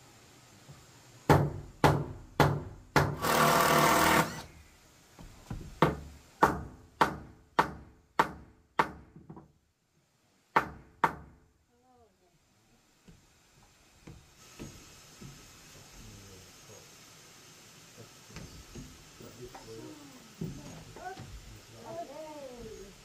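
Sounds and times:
hammer striking wood: 1.3s - 3.4s, 5.5s - 9.5s, 10.5s - 11.4s.

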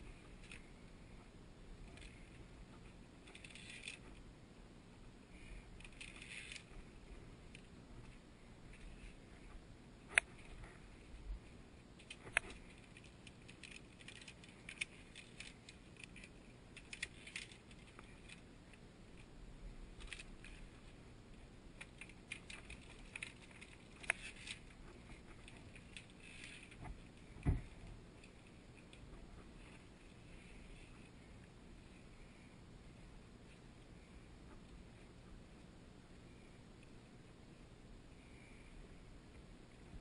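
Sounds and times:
dull thump: 27.4s - 27.8s.

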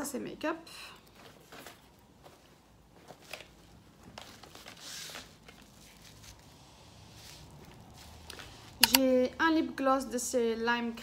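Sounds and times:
packaging rustle: 3.2s - 6.5s.

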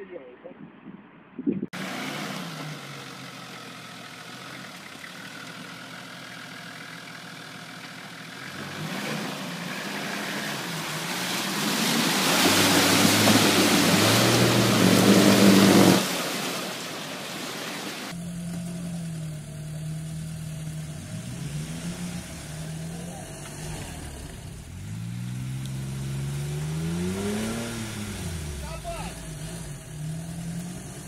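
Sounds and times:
engine labouring: 1.8s - 31.0s
tyres churning mud: 7.8s - 19.8s, 20.5s - 31.0s.

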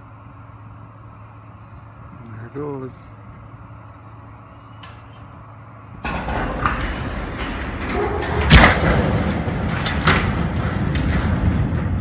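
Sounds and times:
heavy metal impacts: 5.8s - 12.0s
water tower crashing to ground: 6.0s - 12.0s.

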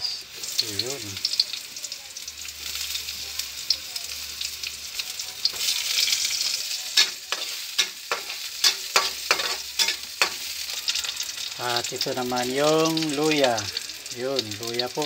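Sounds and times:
onion sizzling in hot oil: 0.0s - 15.0s
metal spatula scraping pan: 7.0s - 11.2s.

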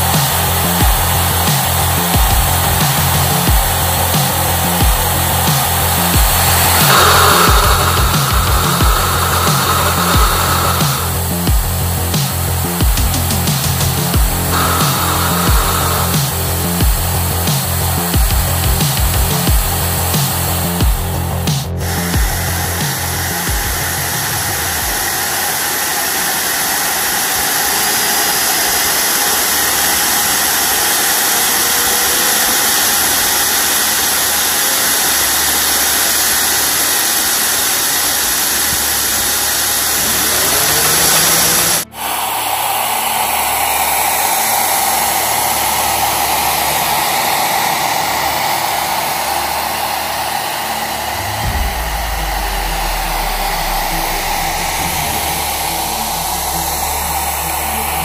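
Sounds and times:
electric motor turbine whoosh: 0.0s - 58.0s
low rumble: 0.3s - 25.5s, 50.7s - 58.0s.

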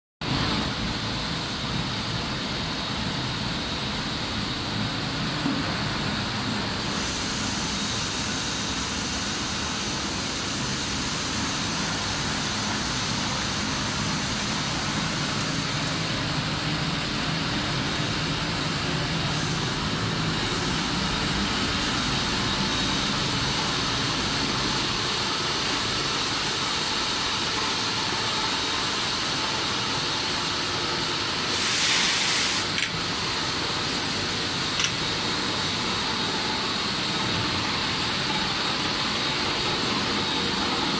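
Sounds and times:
machine humming and hissing: 0.2s - 40.9s
short loud hiss: 31.5s - 32.9s.

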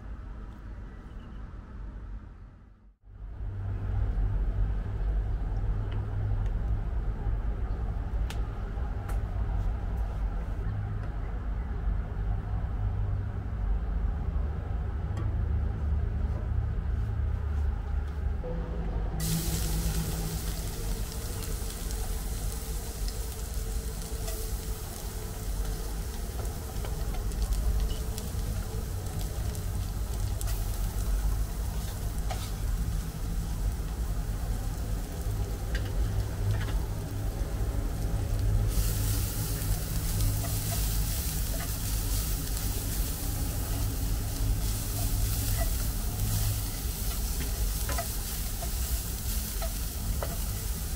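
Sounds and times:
low rumble: 2.9s - 50.9s
food sizzling in hot oil: 19.2s - 50.9s.

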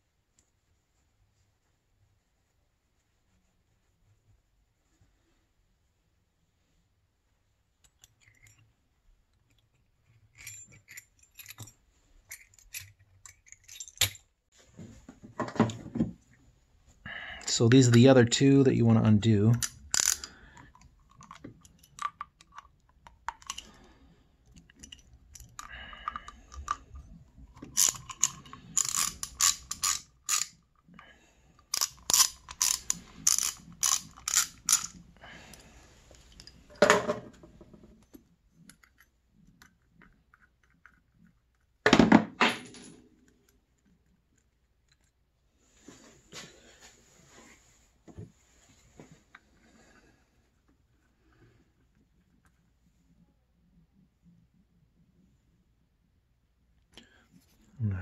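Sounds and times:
hand ratchet clicking: 19.6s - 20.4s, 27.8s - 30.6s, 31.7s - 35.0s.

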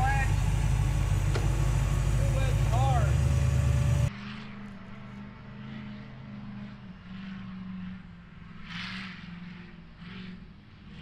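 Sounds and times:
buggy engine revving: 0.0s - 4.1s.

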